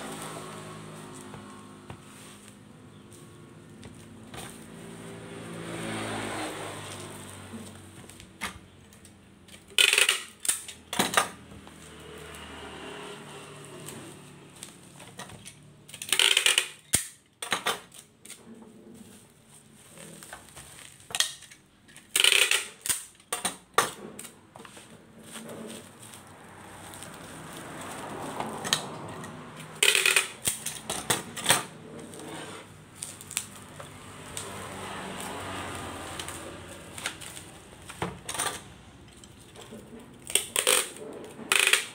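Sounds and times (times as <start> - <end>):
bubble wrap crinkling: 19.0 - 21.1, 24.8 - 28.6, 32.9 - 38.0
packing tape ripping: 20.0 - 23.3, 29.6 - 38.0, 40.2 - 41.9.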